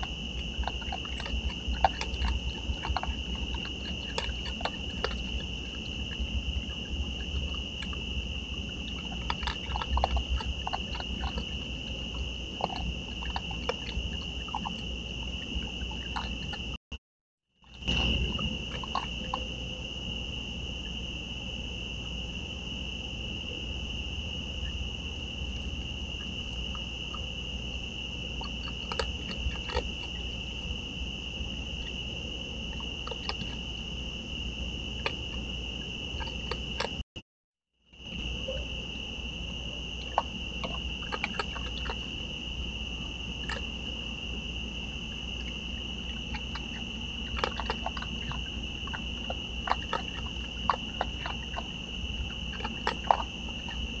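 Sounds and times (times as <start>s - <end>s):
raccoons crunching dry food: 0.0s - 16.7s, 17.8s - 19.5s, 28.4s - 30.2s, 32.8s - 33.6s, 40.0s - 42.2s, 45.3s - 54.0s
high insect trill: 0.0s - 16.8s, 17.6s - 37.0s, 37.9s - 54.0s.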